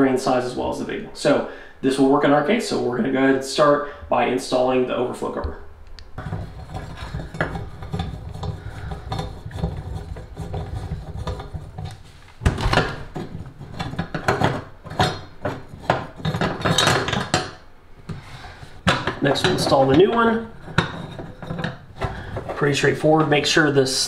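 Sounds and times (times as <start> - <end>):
metal screw and cover clinking: 20.6 - 22.6.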